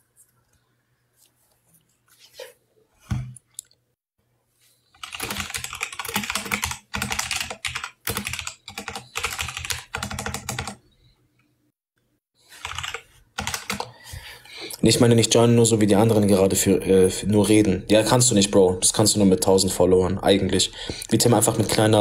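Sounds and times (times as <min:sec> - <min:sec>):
keyboard typing: 0:05.0 - 0:10.8, 0:12.6 - 0:13.9.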